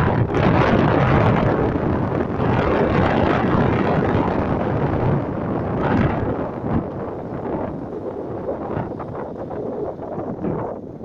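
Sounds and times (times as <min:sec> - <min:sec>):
traffic noise echoing in tunnel: 0:00.0 - 0:11.0
wind on microphone: 0:00.0 - 0:11.0.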